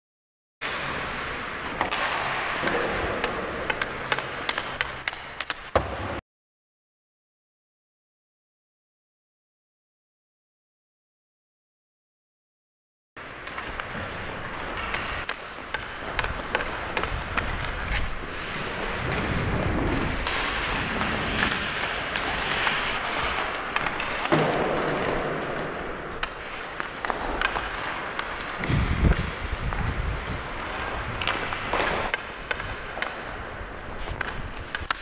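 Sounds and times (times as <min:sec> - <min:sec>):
skate blades scraping on ice: 0:00.7 - 0:05.8, 0:13.2 - 0:35.0
stick clicking on puck: 0:01.7 - 0:05.8, 0:14.7 - 0:18.2, 0:25.5 - 0:29.8, 0:34.0 - 0:35.0.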